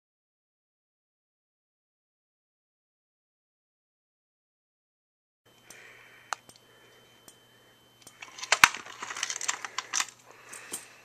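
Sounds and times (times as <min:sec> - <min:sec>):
plastic clicks and rattles: 0:08.0 - 0:10.8.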